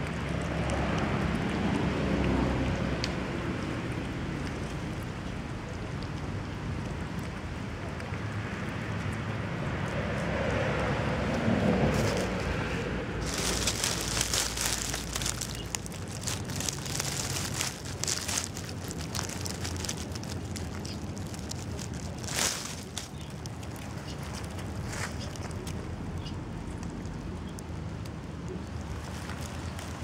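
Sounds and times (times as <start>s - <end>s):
low outdoor rumble: 0.0s - 30.0s
dry leaves crackling and rustling: 11.4s - 30.0s.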